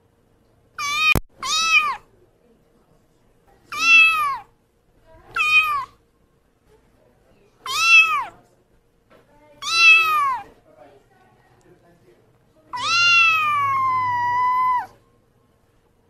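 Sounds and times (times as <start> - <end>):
kitten meowing: 0.8 - 2.0, 3.7 - 4.5, 5.3 - 6.0, 7.6 - 8.4, 9.6 - 10.5, 12.7 - 15.0.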